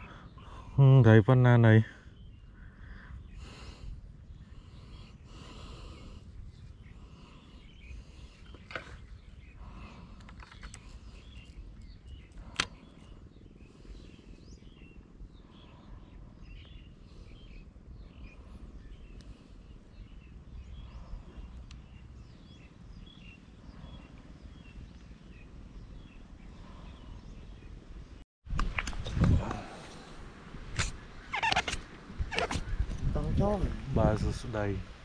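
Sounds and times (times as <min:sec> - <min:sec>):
sharp clicks: 0:10.2 - 0:12.8.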